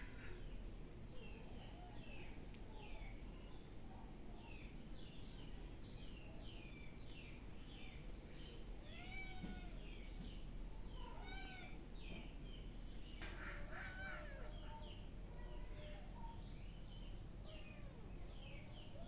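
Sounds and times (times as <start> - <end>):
small birds chirping: 0.0 - 19.0
cat meowing: 8.9 - 9.8.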